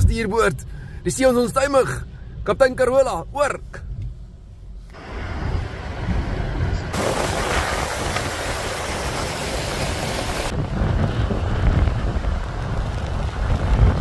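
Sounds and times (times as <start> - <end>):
wind rumble on microphone: 4.9 - 14.0.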